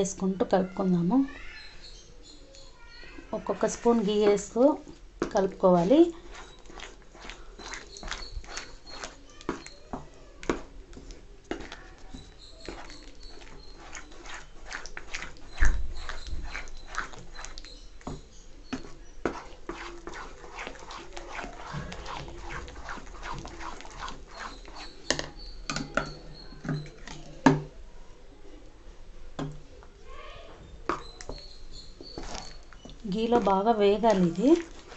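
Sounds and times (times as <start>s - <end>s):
spoon scraping a pan: 1.6s - 27.5s, 30.9s - 34.9s
wet squelching of paste: 3.4s - 27.3s, 30.9s - 34.9s.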